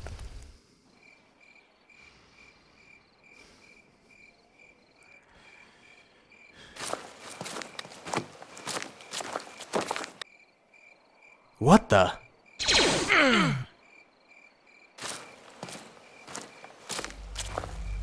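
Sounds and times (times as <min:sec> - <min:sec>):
crickets chirping: 0:00.0 - 0:13.1, 0:13.7 - 0:18.0
loud footsteps: 0:06.8 - 0:10.2, 0:15.0 - 0:18.0.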